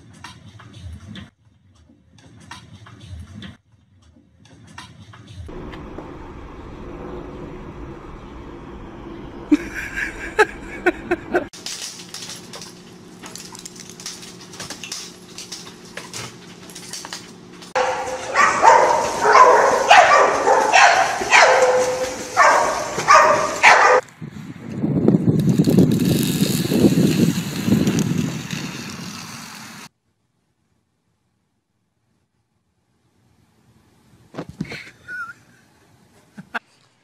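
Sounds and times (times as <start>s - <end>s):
dog barking and yelping: 17.8s - 24.0s.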